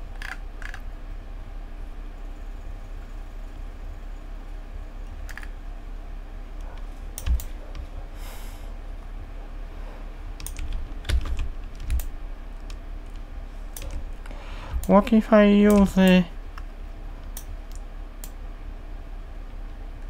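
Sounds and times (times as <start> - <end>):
steady low hum: 0.0 - 20.0
computer keyboard keystrokes: 7.2 - 7.8, 10.4 - 13.2, 15.7 - 18.4.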